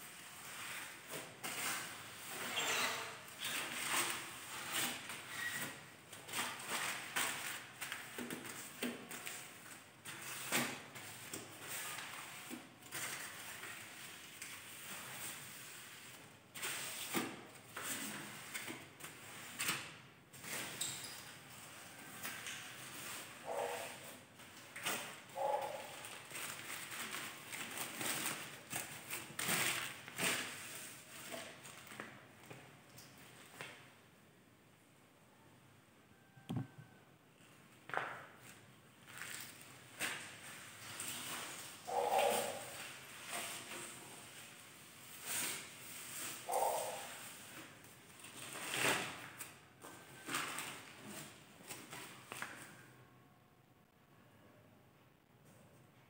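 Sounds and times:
squeak: 0:02.3 - 0:04.0, 0:04.6 - 0:05.7, 0:20.5 - 0:22.2
wiping and rubbing on glass: 0:40.4 - 0:47.8.

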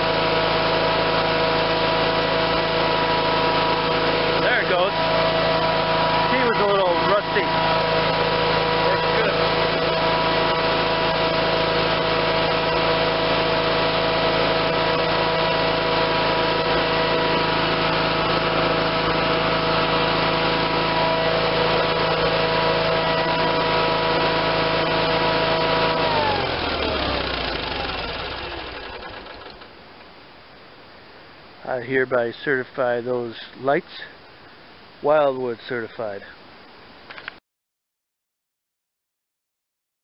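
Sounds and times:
tractor engine running: 0:00.0 - 0:30.1.

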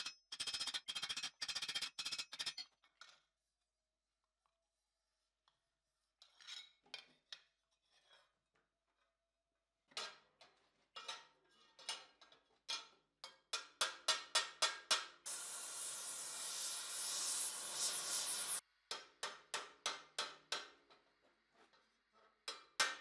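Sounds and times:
torch hissing: 0:15.3 - 0:18.6.

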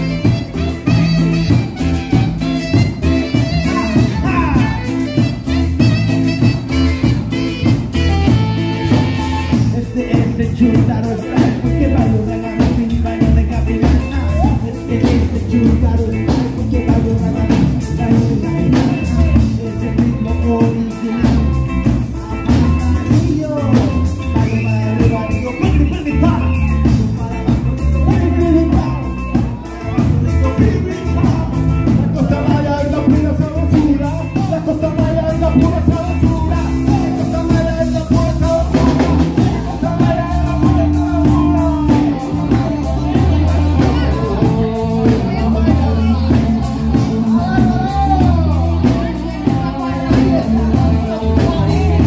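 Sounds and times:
saxophone: 0:00.0 - 0:09.9
drum kit beat: 0:00.0 - 0:52.0
person singing: 0:00.0 - 0:52.0.

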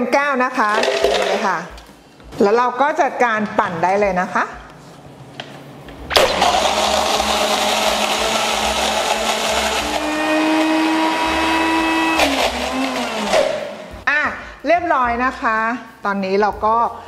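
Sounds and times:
blender crushing ice: 0:00.8 - 0:01.4, 0:06.1 - 0:13.8
blender motor winding down: 0:06.1 - 0:13.8.

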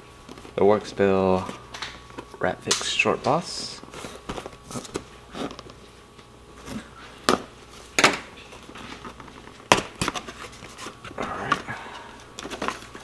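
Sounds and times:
cardboard rustling: 0:03.9 - 0:05.8, 0:08.6 - 0:11.7.

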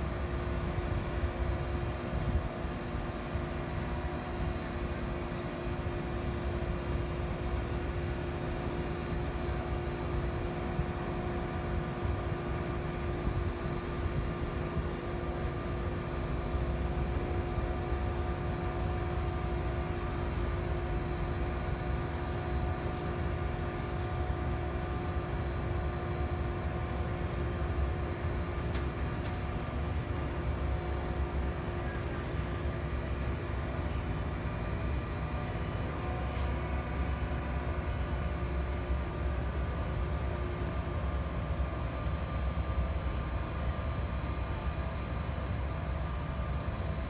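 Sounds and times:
crane engine humming: 0:14.7 - 0:47.0.

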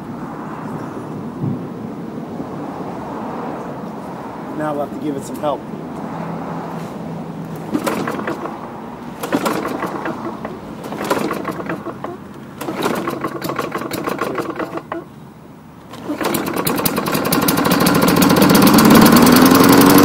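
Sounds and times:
lawn mower engine cranking: 0:07.6 - 0:15.1, 0:15.8 - 0:20.0.

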